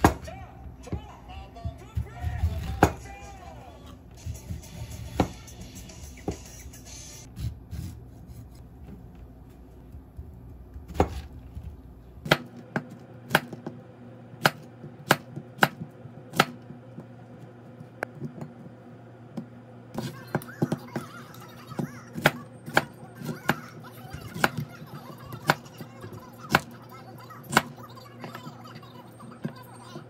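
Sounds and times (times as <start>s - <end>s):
knife chopping on cutting board: 10.8s - 11.4s, 12.2s - 13.8s, 14.4s - 17.1s.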